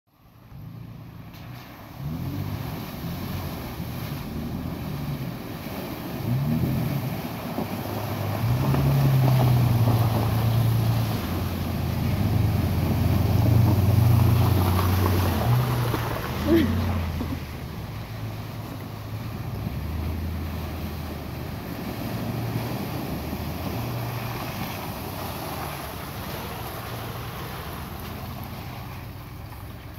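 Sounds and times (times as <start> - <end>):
water churning and splashing: 1.2 - 29.9
truck engine revving: 1.9 - 29.9.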